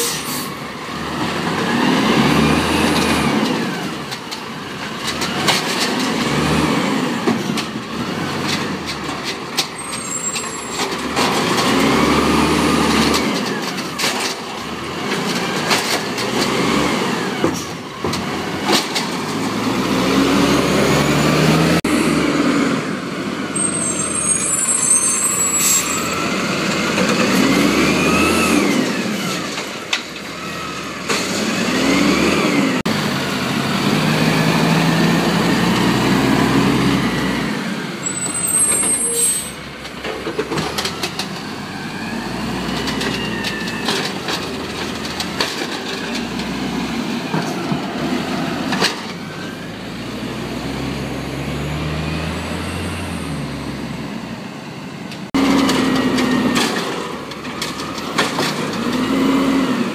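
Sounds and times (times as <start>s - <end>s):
air brake hisses: 0.0s - 0.6s
garbage truck engine revving: 0.4s - 54.5s, 55.2s - 59.9s.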